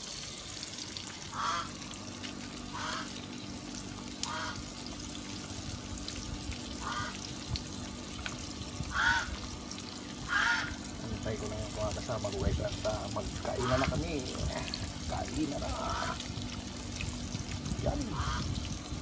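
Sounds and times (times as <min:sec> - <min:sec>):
broth simmering: 0:00.0 - 0:19.0
low electric hum: 0:00.0 - 0:19.0
poultry honking calls: 0:01.3 - 0:01.8, 0:02.7 - 0:03.2, 0:04.2 - 0:04.7, 0:06.8 - 0:07.3, 0:08.9 - 0:09.4, 0:10.2 - 0:10.8, 0:18.1 - 0:18.5.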